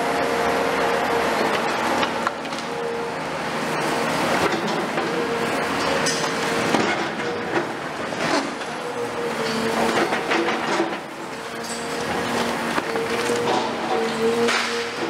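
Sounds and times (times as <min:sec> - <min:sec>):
excavator engine and hydraulics: 0:00.0 - 0:15.0
concrete cracking and rubble falling: 0:09.8 - 0:14.8.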